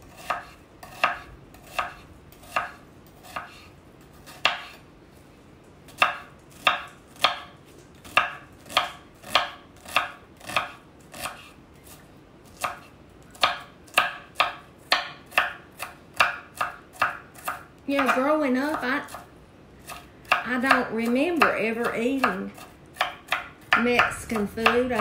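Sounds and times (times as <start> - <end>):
knife chopping on wooden board: 0.1 - 3.7, 4.3 - 4.8, 6.0 - 7.5, 8.1 - 11.5, 13.4 - 19.2, 22.2 - 25.0.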